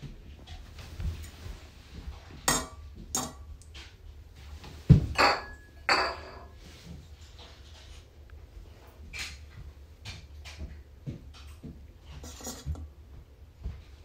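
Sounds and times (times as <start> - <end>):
spoon and bowl knocking and scraping: 5.1 - 6.6, 12.2 - 12.8.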